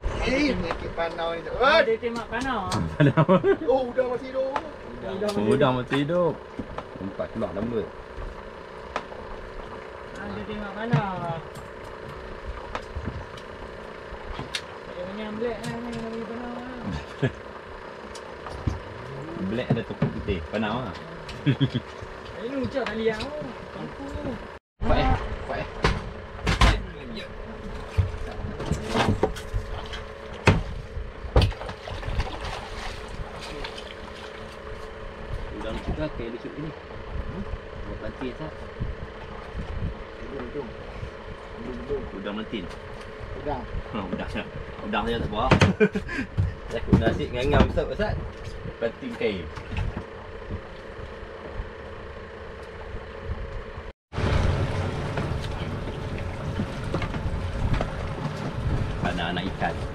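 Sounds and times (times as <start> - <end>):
outboard motor running: 0.0 - 59.9
steady hum: 0.0 - 59.9
wind: 0.0 - 59.9
fish splashing: 31.4 - 35.1.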